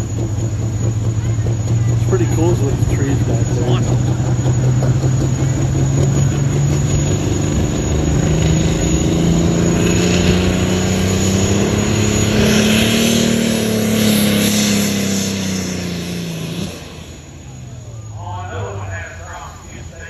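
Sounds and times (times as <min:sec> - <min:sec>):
diesel tractor engine running hard: 0:00.0 - 0:20.0.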